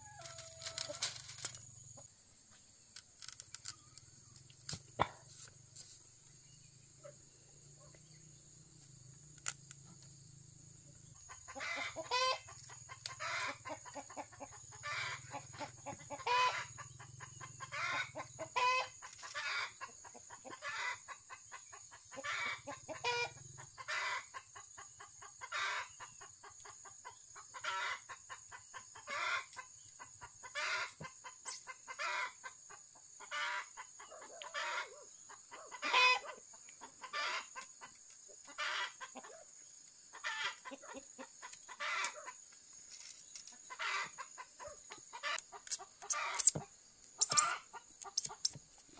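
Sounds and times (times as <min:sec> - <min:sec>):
chicken squawking: 0:33.3 - 0:36.4, 0:37.0 - 0:37.5, 0:43.7 - 0:48.5.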